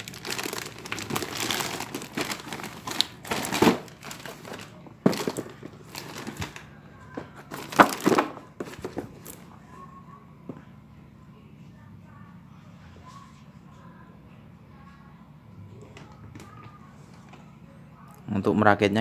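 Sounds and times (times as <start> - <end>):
paper wrapping crinkling: 0.0 - 6.7, 7.4 - 9.4.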